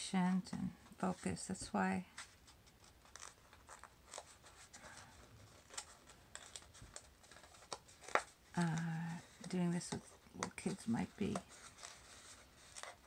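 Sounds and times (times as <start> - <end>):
stiff paper crinkling: 2.1 - 13.0
small paper clicks: 2.2 - 13.0.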